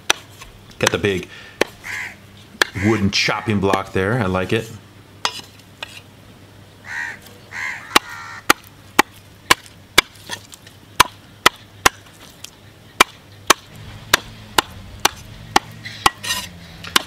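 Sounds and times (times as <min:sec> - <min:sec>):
knife chopping on wooden block: 0:13.0 - 0:17.0.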